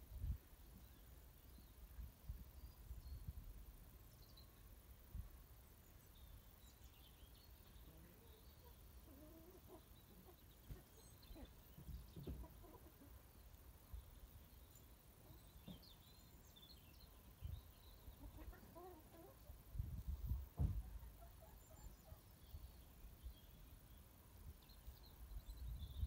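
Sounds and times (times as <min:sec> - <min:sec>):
chickens clucking: 0:07.8 - 0:13.3, 0:18.1 - 0:19.6.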